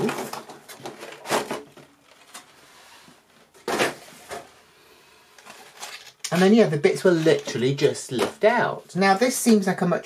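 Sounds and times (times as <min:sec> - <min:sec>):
plastic packaging crackling: 0:05.4 - 0:08.4.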